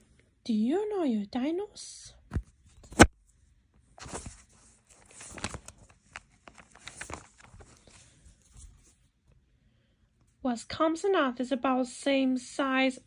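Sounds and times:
paper and fabric rustling: 2.3 - 9.2.

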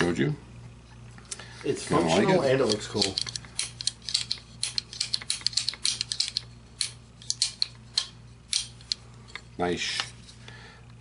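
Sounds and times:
small metal clicks: 2.6 - 9.4.

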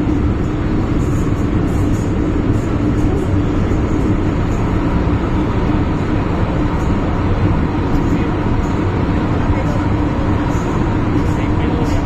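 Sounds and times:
train rolling rumble: 0.0 - 12.0.

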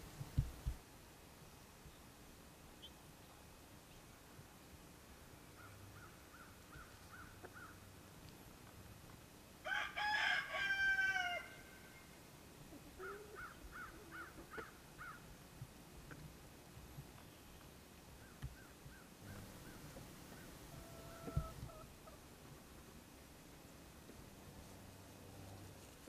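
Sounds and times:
rooster crowing: 9.6 - 12.0
chickens giving short high calls: 19.2 - 22.2.

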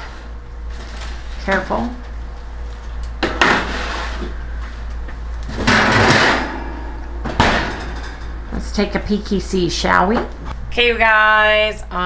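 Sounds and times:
pan scraping on oven rack: 3.4 - 4.6.

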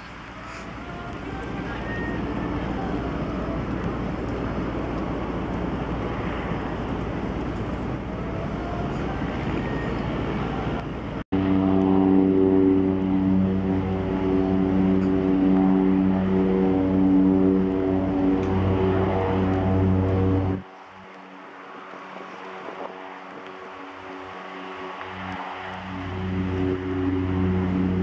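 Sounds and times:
propeller drone: 0.0 - 28.0
turboprop engine running: 10.5 - 28.0.

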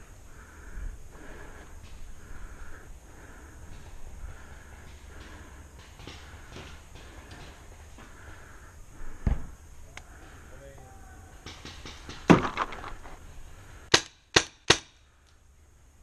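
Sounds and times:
dull thump: 9.2 - 9.6.

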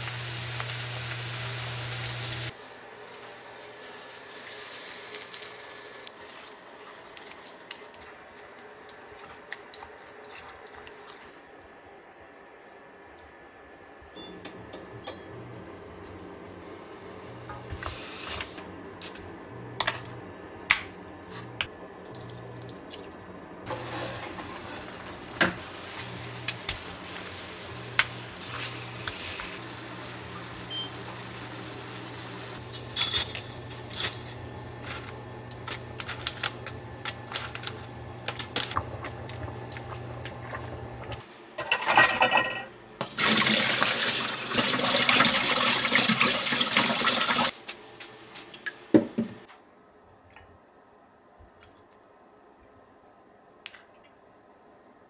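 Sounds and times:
tap water running: 0.0 - 2.6, 21.9 - 32.8, 35.5 - 41.2, 43.0 - 47.5
meat sizzling in a frying pan: 0.0 - 6.1.

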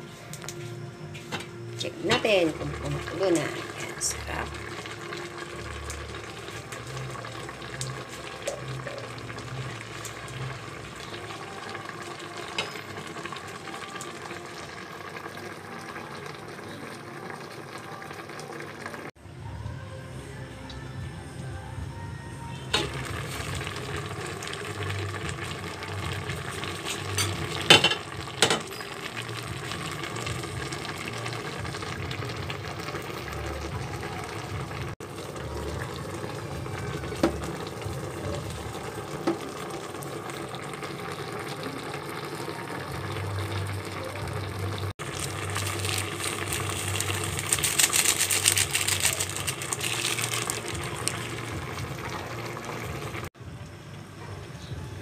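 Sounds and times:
broth bubbling at a boil: 2.2 - 19.1, 22.8 - 53.4
glass lid clinking: 26.9 - 29.0.

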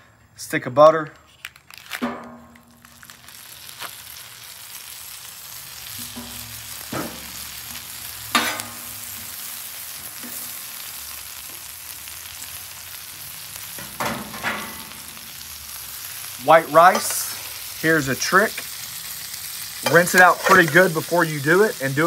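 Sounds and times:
butter sizzling on a griddle: 2.7 - 22.0
metal spatula scraping steel: 19.8 - 20.9.

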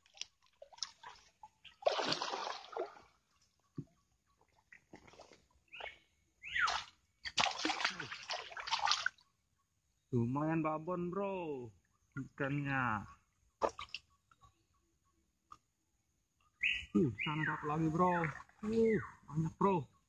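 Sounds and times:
water splashing from thrashing fish: 0.0 - 3.2, 6.7 - 9.2.

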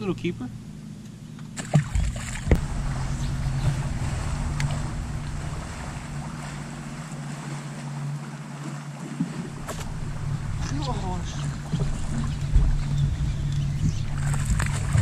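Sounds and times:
wind on microphone: 1.7 - 8.3, 9.1 - 15.0
electric motor humming: 2.4 - 8.2, 9.4 - 15.0.

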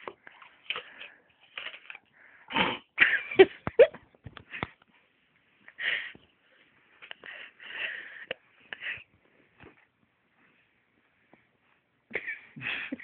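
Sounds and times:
noisy breaths: 0.1 - 2.9, 5.7 - 9.6.

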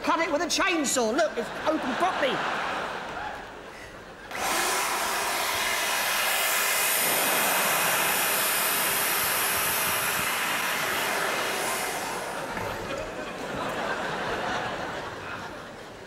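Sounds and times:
electric chainsaw running: 4.3 - 13.8.

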